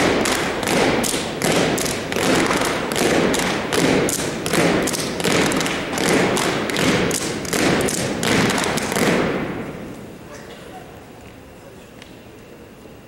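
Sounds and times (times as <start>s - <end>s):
drill team slaps and thuds: 0.0s - 9.8s.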